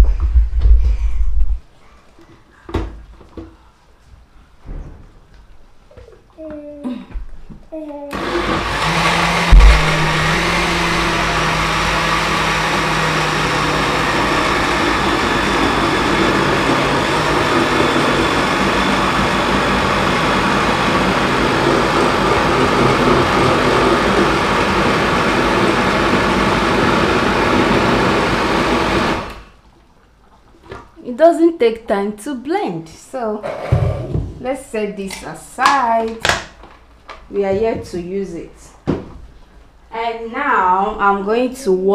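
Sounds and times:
blender running: 0:08.1 - 0:29.5.

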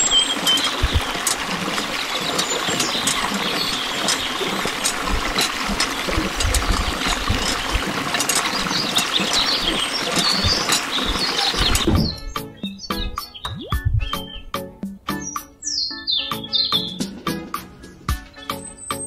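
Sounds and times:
water stream splashing into basin: 0:00.0 - 0:12.3
pump handle clicking: 0:00.0 - 0:12.4.

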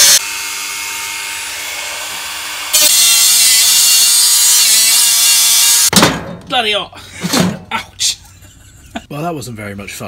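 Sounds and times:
rotary tool grinding metal: 0:00.0 - 0:05.9.

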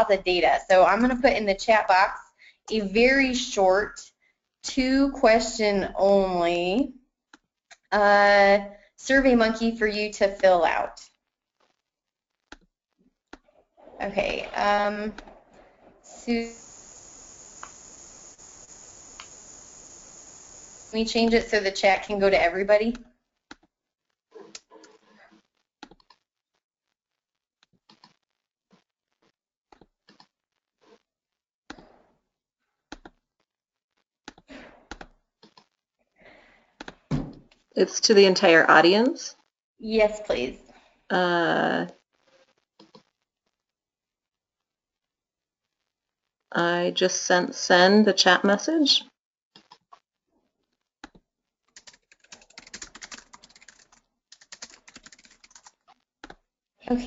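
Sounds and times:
short noisy bursts: 0:16.0 - 0:22.5
keyboard keystrokes and clicks: 0:51.8 - 0:56.4.

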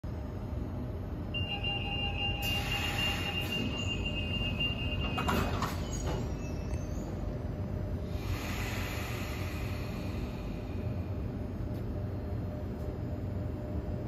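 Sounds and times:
high warning tone: 0:01.3 - 0:07.2
train door clunks: 0:05.0 - 0:06.4.

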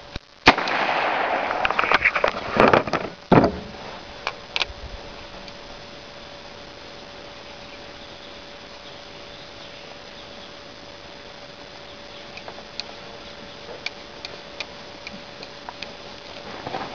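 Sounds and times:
revolver gunshots: 0:00.5 - 0:01.6
faint clicks: 0:12.2 - 0:16.8.

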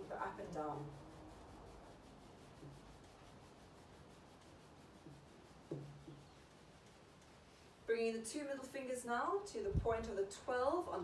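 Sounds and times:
thumbs rubbing fabric: 0:00.0 - 0:08.0.

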